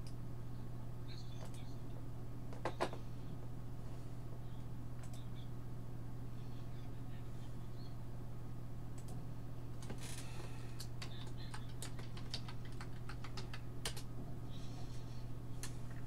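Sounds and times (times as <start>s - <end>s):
typing on computer keyboard: 10.8s - 14.1s.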